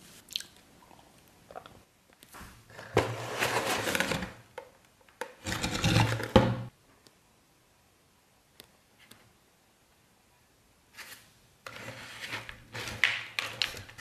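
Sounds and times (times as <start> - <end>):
cardboard box scraping: 2.8 - 4.4, 5.4 - 6.4.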